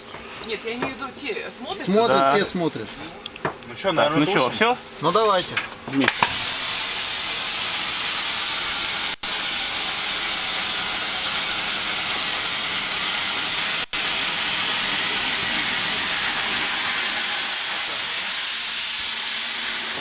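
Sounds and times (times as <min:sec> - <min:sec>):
gas rushing hiss: 0:06.0 - 0:20.0.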